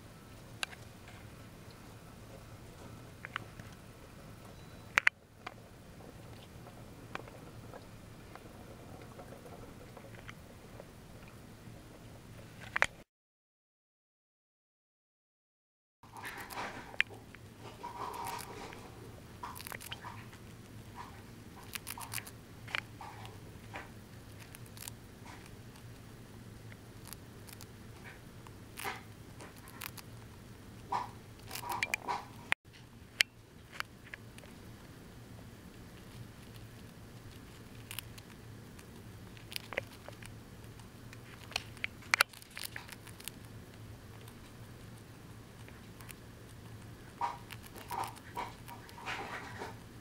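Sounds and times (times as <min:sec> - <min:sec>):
faint low hum: 0:00.0 - 0:13.0
hamster chewing food: 0:00.4 - 0:12.9, 0:16.0 - 0:50.0.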